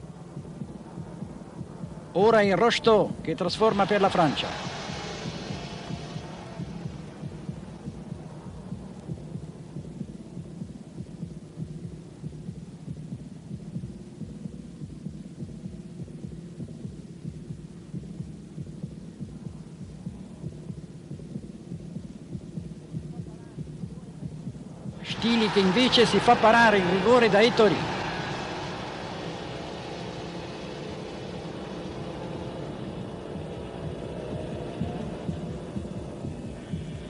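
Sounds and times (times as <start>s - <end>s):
muffled stadium crowd din: 23.1s - 29.0s.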